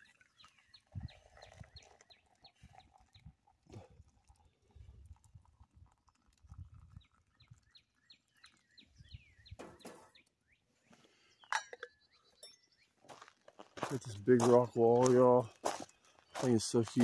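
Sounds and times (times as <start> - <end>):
bird chirping: 0.0 - 3.5, 6.2 - 13.2, 13.9 - 17.0
ringing metal lid clink: 11.5 - 12.6.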